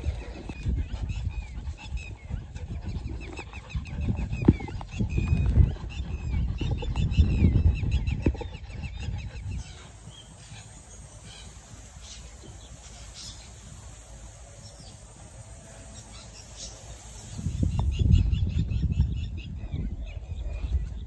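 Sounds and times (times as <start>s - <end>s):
low rumble on microphone: 0.0s - 21.0s
rapid high chirping: 9.3s - 18.2s.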